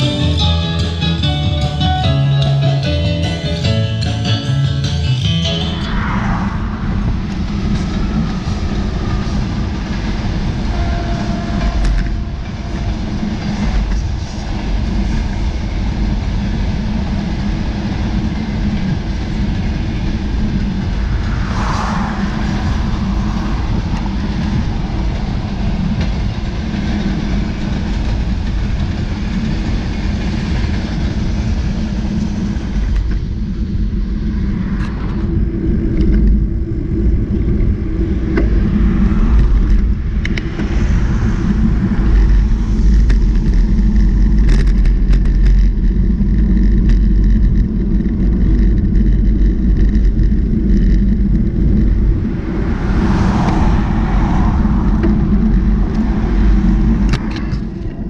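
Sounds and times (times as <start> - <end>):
vehicle rumble and drone: 0.0 - 58.0.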